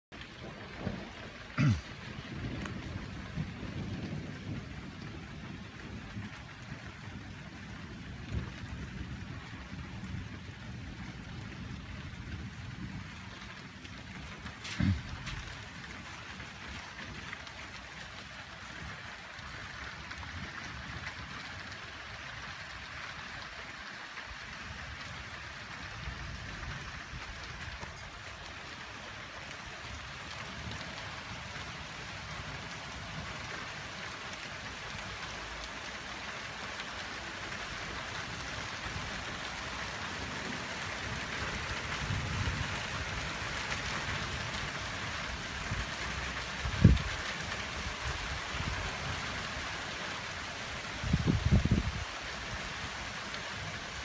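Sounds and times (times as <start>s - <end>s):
steady rain: 0.1s - 54.0s
distant thunder rumbles: 0.2s - 17.8s.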